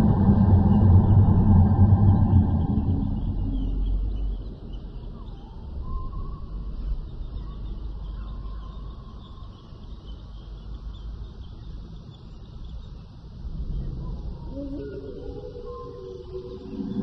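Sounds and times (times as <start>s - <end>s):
deep rumble: 0.0s - 8.1s, 13.0s - 17.0s
faint high chirping: 0.0s - 17.0s
low steady rumble: 0.0s - 17.0s.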